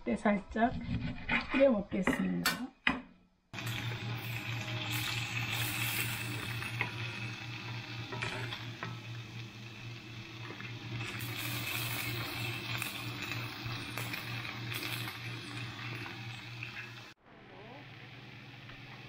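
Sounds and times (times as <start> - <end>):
fish sizzling in a pan: 3.6 - 17.2.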